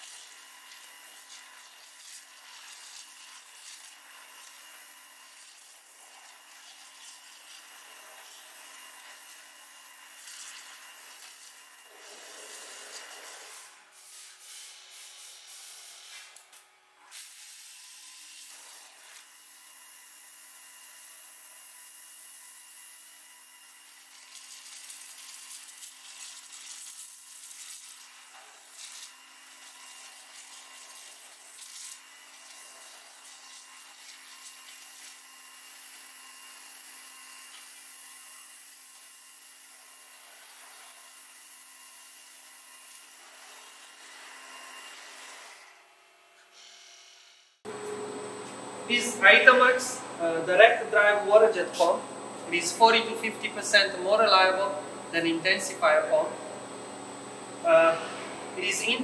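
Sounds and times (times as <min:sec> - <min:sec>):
waterjet hissing: 0:10.1 - 0:14.9, 0:47.7 - 0:56.6, 0:57.5 - 0:59.0.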